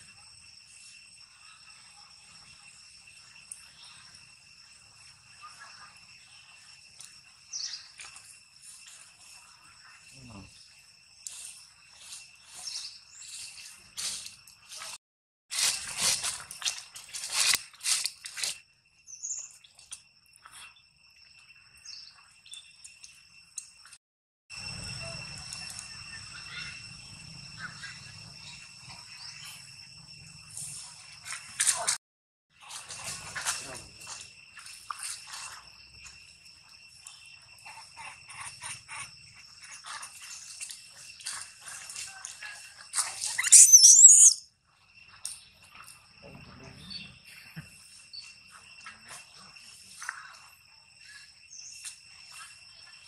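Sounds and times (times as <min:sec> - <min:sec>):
high insect drone: 0:00.0 - 0:53.0
crackling and rustling in dry leaves: 0:11.2 - 0:18.6, 0:30.6 - 0:36.2, 0:39.6 - 0:43.5
bird chirps: 0:43.2 - 0:44.4.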